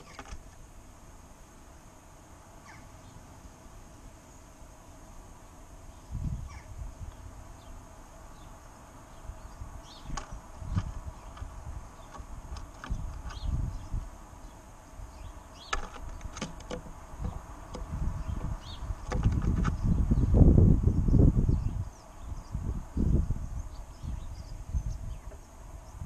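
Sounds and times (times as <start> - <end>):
faint bird chirps: 2.6 - 3.3, 5.8 - 12.2, 18.0 - 26.0
wind rumbling on microphone: 5.8 - 26.0.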